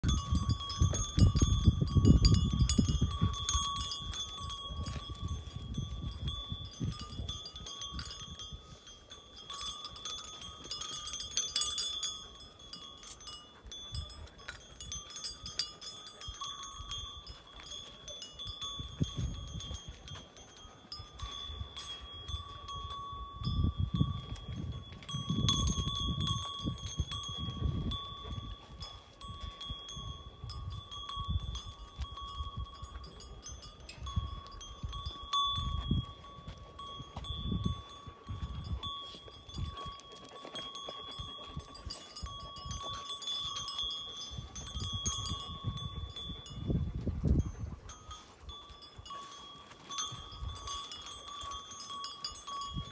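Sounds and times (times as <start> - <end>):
small bell jingling: 0.0 - 52.9.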